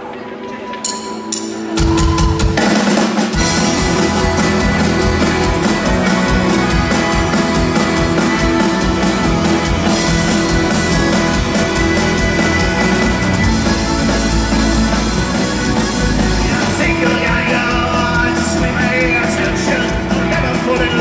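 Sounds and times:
folk-rock band playing: 0.0s - 21.0s
drum hits: 1.8s - 20.3s.

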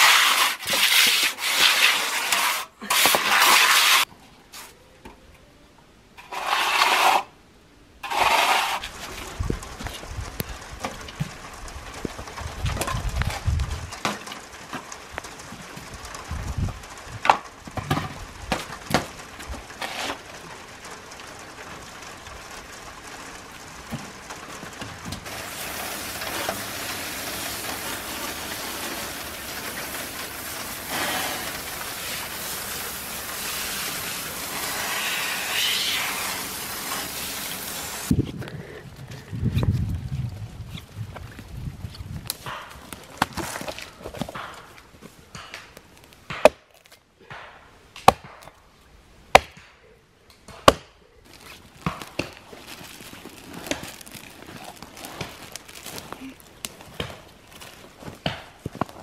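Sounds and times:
hose spraying water: 0.0s - 4.1s, 25.2s - 38.2s
trowels scraping wet concrete: 0.0s - 4.8s, 6.2s - 7.3s, 8.0s - 9.2s.

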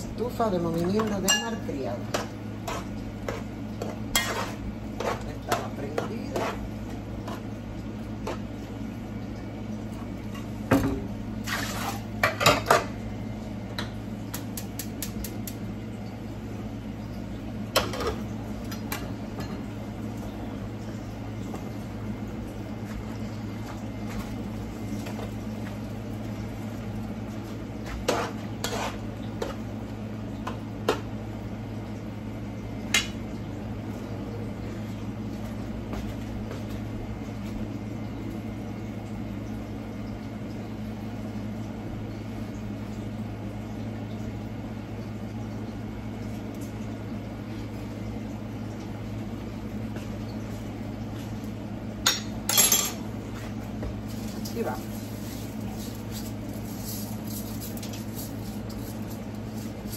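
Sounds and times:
low kitchen hum: 0.0s - 59.9s
metal cookware clinking: 0.9s - 1.8s, 52.1s - 53.0s.

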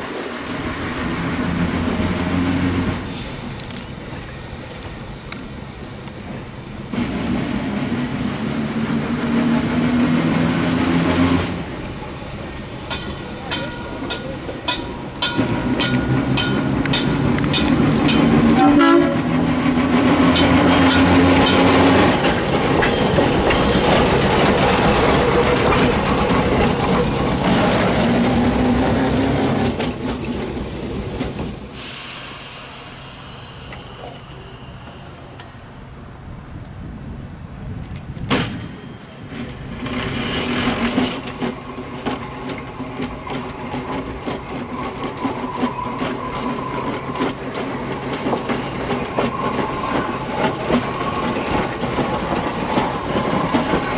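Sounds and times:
wheels clicking over rail joints: 12.6s - 31.7s, 37.6s - 53.9s
trolley car horn blasts: 12.9s - 19.4s
faint high squeal: 44.8s - 47.2s.

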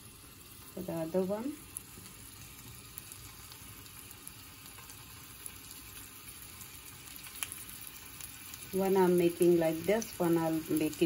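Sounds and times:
kebab sizzling in oil: 0.0s - 11.0s.

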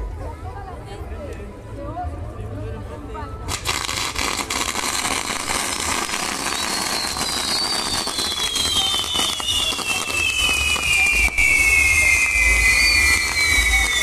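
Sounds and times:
fireworks hissing and crackling: 3.5s - 14.0s
shrill falling whistle: 6.5s - 14.0s.

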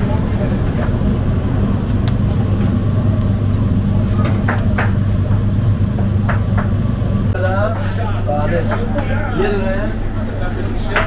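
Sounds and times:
low mechanical drone: 0.0s - 11.0s.

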